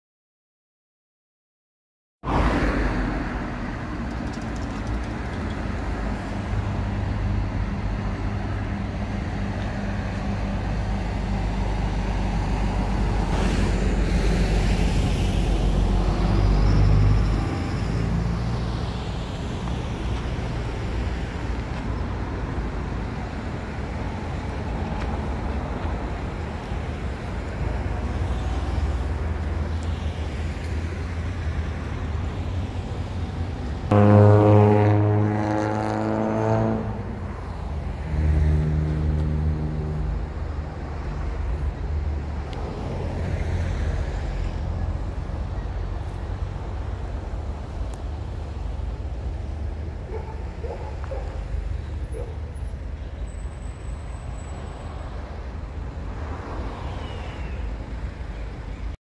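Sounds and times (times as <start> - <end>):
road traffic rumble: 2.2 - 59.0
vehicle engine passing by: 33.9 - 48.8.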